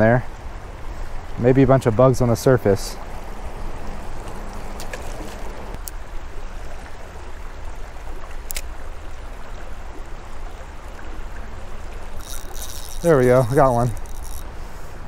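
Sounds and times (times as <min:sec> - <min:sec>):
flowing creek water: 0:00.0 - 0:15.0
light ticks: 0:12.2 - 0:14.4.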